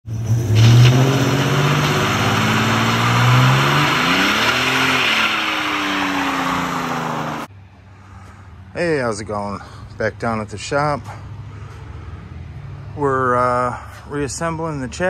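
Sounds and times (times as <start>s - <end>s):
car engine revving hard: 0.1s - 7.5s.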